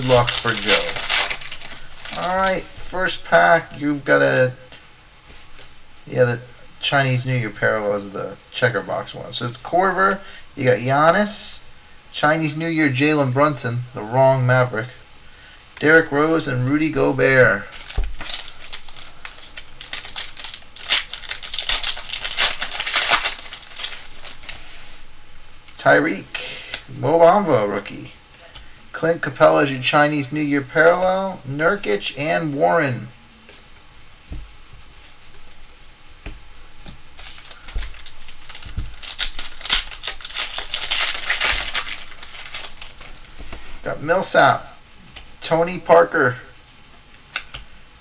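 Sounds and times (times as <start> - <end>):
foil wrapper crinkling: 0.0 - 2.7, 17.6 - 25.0, 37.2 - 43.7.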